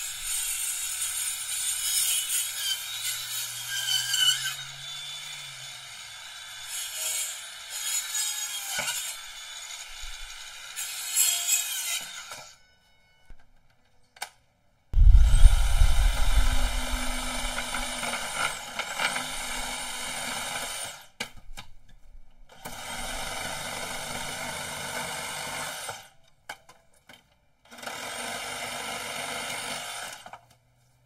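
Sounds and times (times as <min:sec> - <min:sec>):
reciprocating saw cutting wood: 0:00.0 - 0:12.6, 0:15.0 - 0:21.2.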